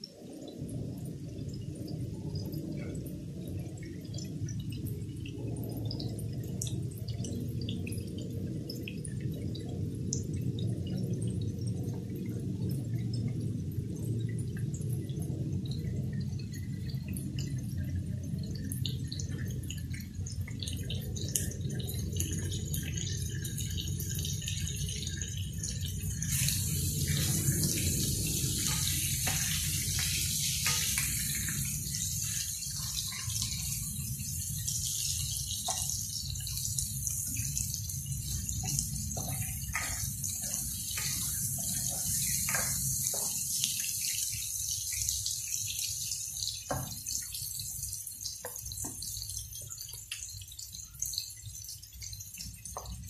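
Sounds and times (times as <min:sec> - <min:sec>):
steady low rumble: 0:00.6 - 0:43.8
shrimps sizzling in hot oil: 0:05.2 - 0:53.0
spatula tapping against pan: 0:39.1 - 0:43.7.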